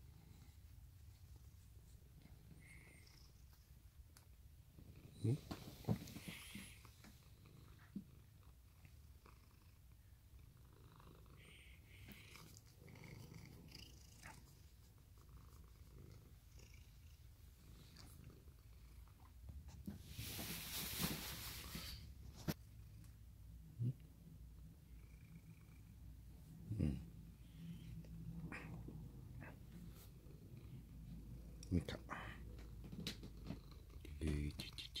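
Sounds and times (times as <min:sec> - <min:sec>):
cat purring: 0:00.0 - 0:35.0
rustling: 0:19.6 - 0:22.6.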